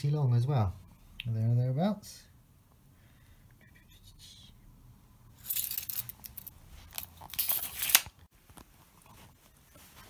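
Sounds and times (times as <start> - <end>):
handling noise rustling: 5.4 - 10.0.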